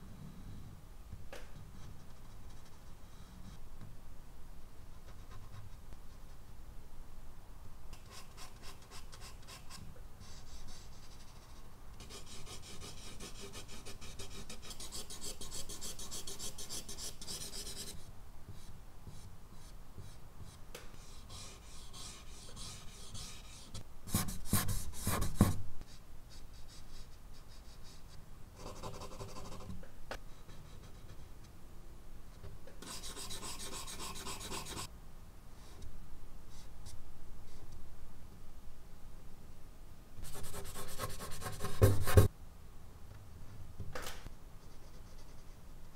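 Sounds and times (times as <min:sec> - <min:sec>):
pencil scratching on paper: 0:21.1 - 0:25.6, 0:32.8 - 0:34.9.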